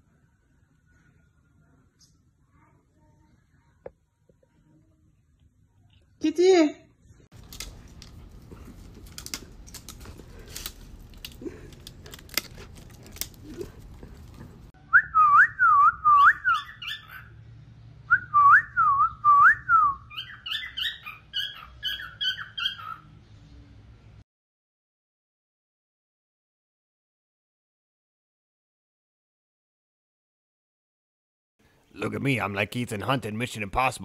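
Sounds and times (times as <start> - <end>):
cockatiel whistling: 14.9 - 17.3.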